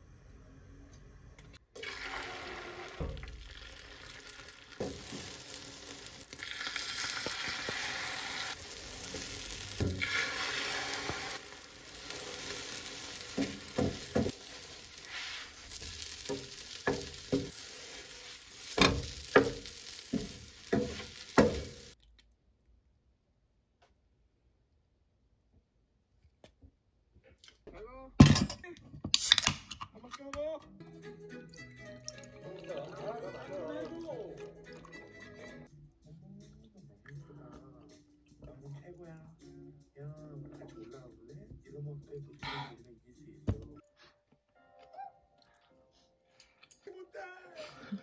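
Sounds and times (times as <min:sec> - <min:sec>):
omelette sizzling in frying pan: 0:01.8 - 0:22.0
spatula scraping pan: 0:04.8 - 0:22.0.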